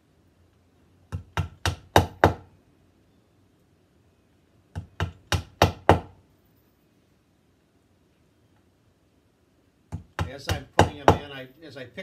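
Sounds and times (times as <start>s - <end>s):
mallet tapping nails into wood: 1.1s - 2.5s, 4.7s - 6.2s, 9.9s - 11.3s.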